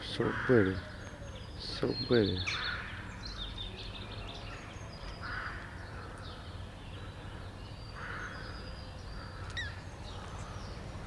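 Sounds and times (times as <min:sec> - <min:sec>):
small birds chirping: 0:00.0 - 0:11.0
crow cawing: 0:00.2 - 0:01.2, 0:02.5 - 0:03.0, 0:05.2 - 0:06.4, 0:07.0 - 0:10.6.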